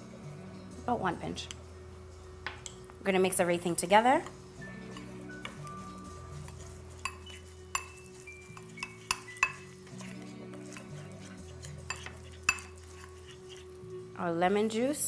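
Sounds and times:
background music with bass: 0.0s - 2.7s
spoon clinking glass bowl: 4.7s - 13.6s.

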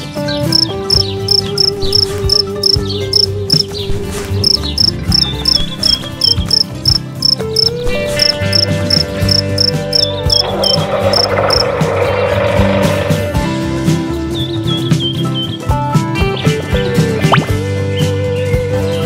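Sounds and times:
soft music with held notes: 0.0s - 19.0s
cricket chirping: 0.5s - 11.7s.

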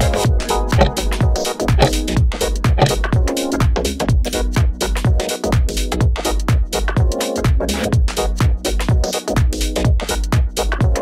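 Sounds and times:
electronic synth layers: 0.0s - 6.4s
kick drum beat: 0.0s - 11.0s.

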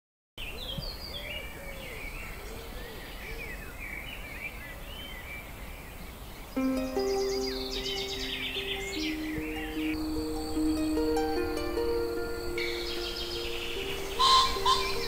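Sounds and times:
birds singing and chirping: 0.4s - 15.0s
low rising and falling bird call: 6.5s - 15.0s.

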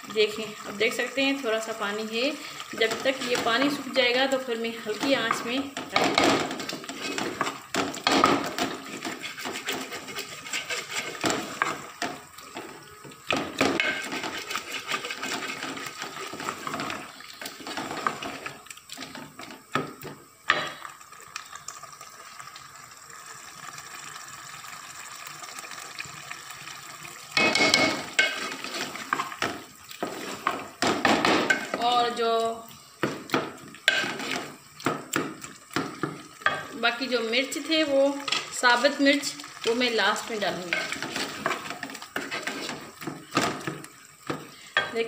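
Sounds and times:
spatula scraping metal pot: 4.8s - 11.9s, 13.7s - 18.5s, 40.4s - 43.4s.

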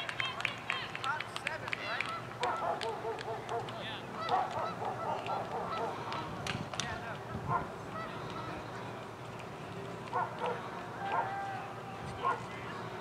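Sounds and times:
rapid honking calls: 4.1s - 6.3s.

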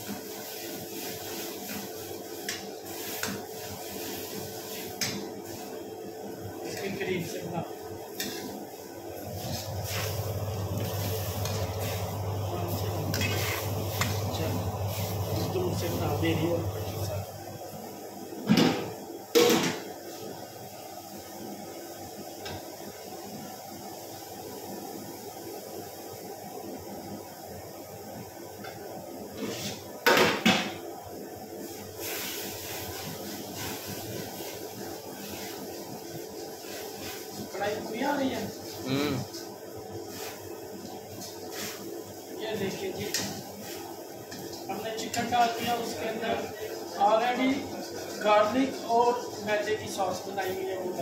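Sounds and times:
garlic sizzling in hot oil: 0.0s - 5.7s, 8.1s - 17.2s, 31.6s - 51.0s
ladle stirring oil: 0.0s - 5.8s, 8.1s - 17.3s, 31.6s - 51.0s.

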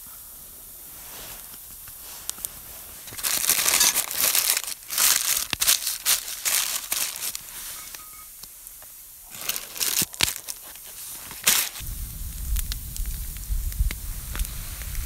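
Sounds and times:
campfire crackling and popping: 1.4s - 15.0s
parchment paper crinkling: 1.5s - 8.0s, 9.2s - 11.8s
low steady rumble: 11.8s - 15.0s.

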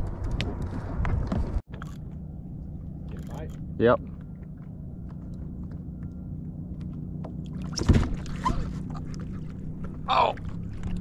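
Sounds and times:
water lapping against kayak: 7.3s - 11.0s.

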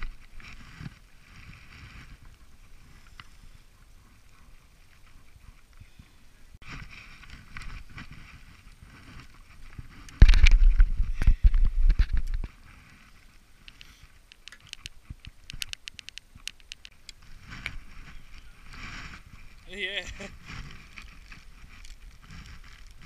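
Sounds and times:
microphone rumbling and rubbing: 0.0s - 13.3s, 17.2s - 23.0s
fishing tackle ticking: 13.6s - 17.2s.

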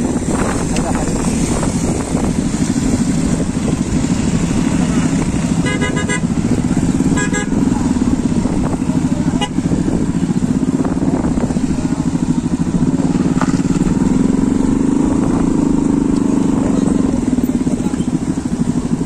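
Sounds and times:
motorcycle engine running: 0.0s - 19.0s
vehicle horn toot: 5.6s - 6.3s, 7.1s - 7.7s, 9.3s - 9.7s.

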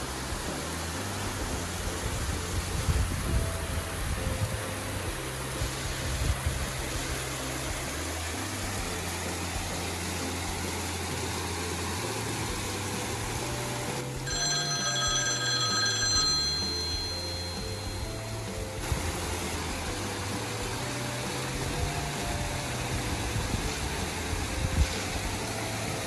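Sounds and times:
water rushing over waterfall: 0.0s - 14.2s, 18.8s - 26.0s
background music with low notes: 0.0s - 26.0s
high bell-like tones: 14.2s - 18.8s.

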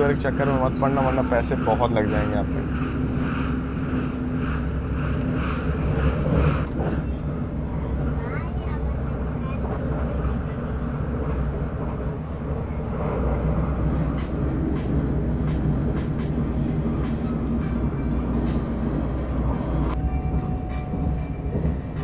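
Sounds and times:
train wheels rumbling on rails: 0.0s - 22.0s.

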